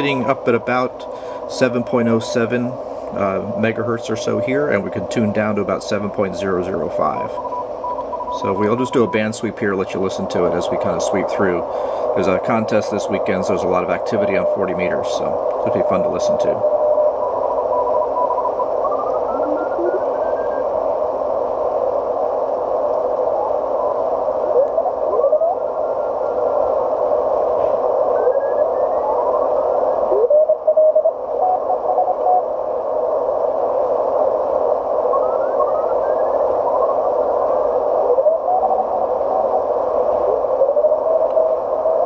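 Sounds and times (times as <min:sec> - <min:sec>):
radio receiver hiss: 0:00.0 - 0:42.0
morse code tones: 0:06.9 - 0:09.5.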